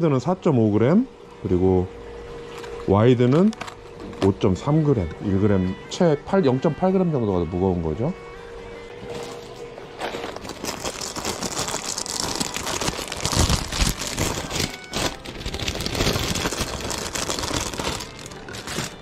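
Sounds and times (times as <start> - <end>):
packaging rustling and crinkling: 10.0 - 19.0.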